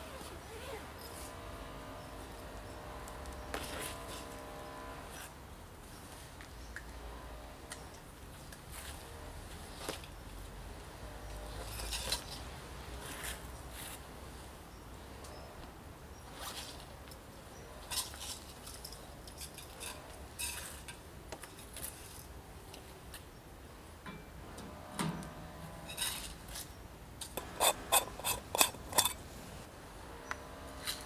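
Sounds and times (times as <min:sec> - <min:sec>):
zip opening: 0:03.3 - 0:05.3.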